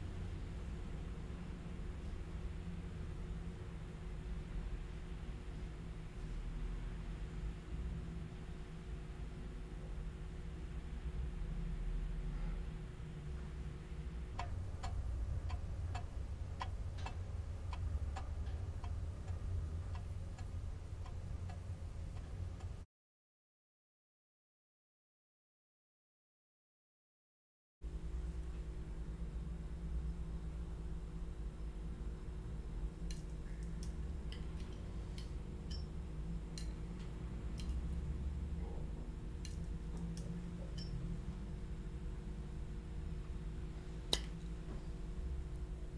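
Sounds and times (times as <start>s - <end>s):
low steady hum: 0.0s - 22.9s, 27.8s - 45.9s
pendulum clock ticking: 14.3s - 22.8s
sharp light ticks and clicks: 33.0s - 38.1s, 39.4s - 41.1s.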